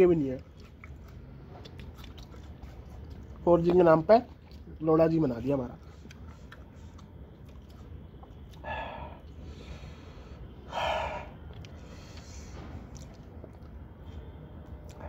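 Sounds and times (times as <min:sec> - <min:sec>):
man breathing out heavily: 0:08.6 - 0:12.8.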